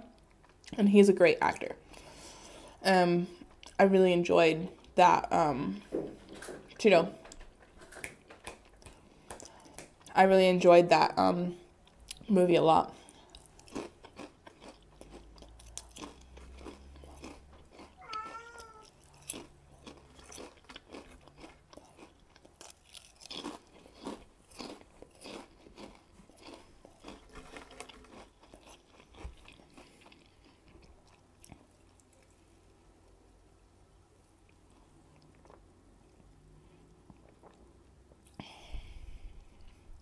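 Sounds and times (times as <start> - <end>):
chips crunching: 13.4 - 32.3.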